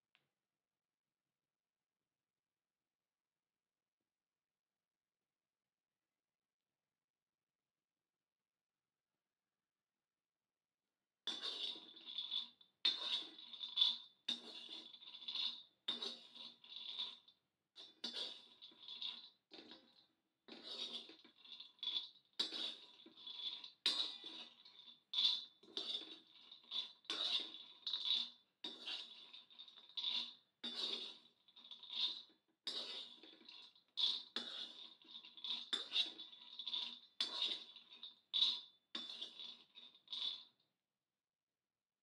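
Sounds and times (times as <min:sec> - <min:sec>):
spoon scraping metal griddle: 0:11.3 - 0:40.5.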